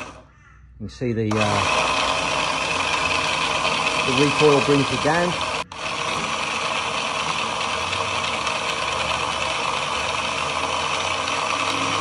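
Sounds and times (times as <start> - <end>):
electric winch running: 0.0 - 0.3, 1.3 - 12.0.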